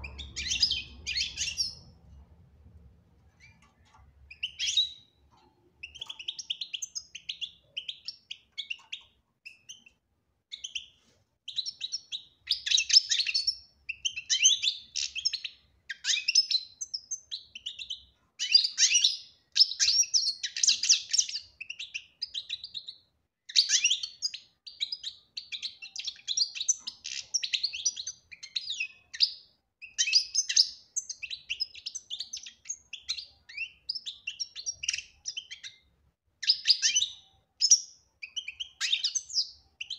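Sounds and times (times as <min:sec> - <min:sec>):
goldfinch twittering song: 0:00.0 - 0:02.0, 0:04.3 - 0:05.2.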